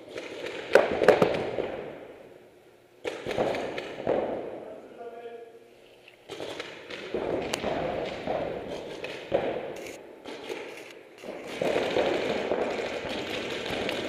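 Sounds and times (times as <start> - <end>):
sharp cracks: 0.0 - 2.1, 3.0 - 4.8, 6.2 - 14.0
camera rustling and bumping: 9.8 - 11.8.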